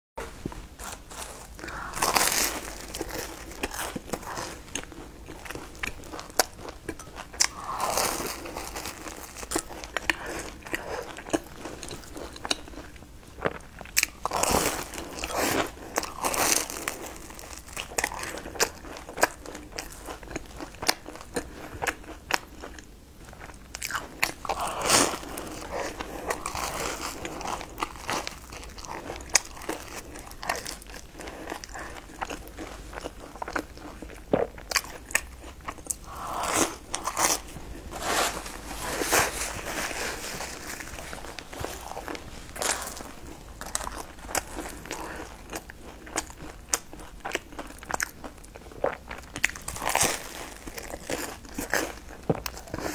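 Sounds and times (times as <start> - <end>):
person chewing: 0.8 - 52.9.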